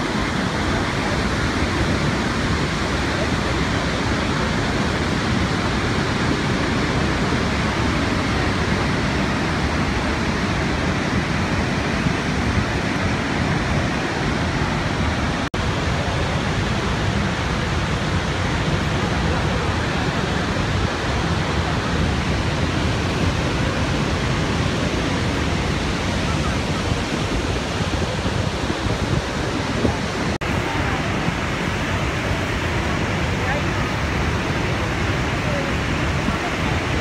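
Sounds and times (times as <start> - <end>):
waterfall roaring: 0.0 - 37.0.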